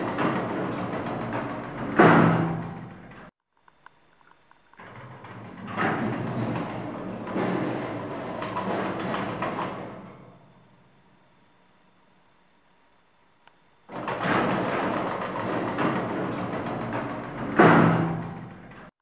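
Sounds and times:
lift doors banging: 0.0 - 3.3, 4.8 - 10.6, 13.9 - 18.9
lift doors rumbling shut: 0.0 - 3.3, 4.8 - 10.7, 13.9 - 18.9.

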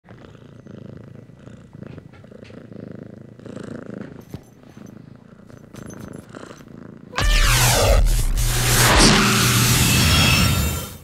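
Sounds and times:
cat purring: 0.0 - 7.2.

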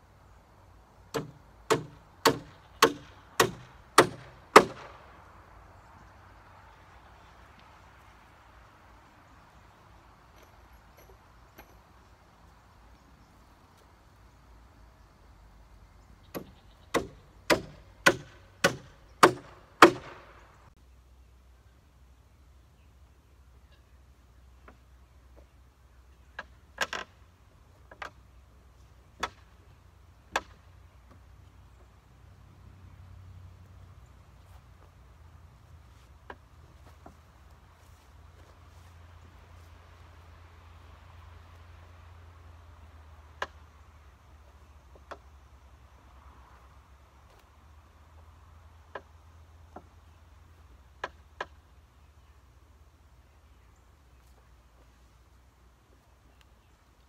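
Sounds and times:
wooden knocks and clunks: 26.3 - 28.3, 35.9 - 37.4, 44.6 - 45.4, 48.8 - 50.2.

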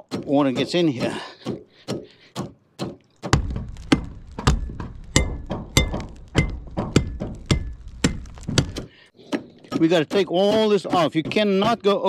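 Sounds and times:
hammer striking metal roof edge: 0.0 - 12.0
low rumble: 3.4 - 8.8.

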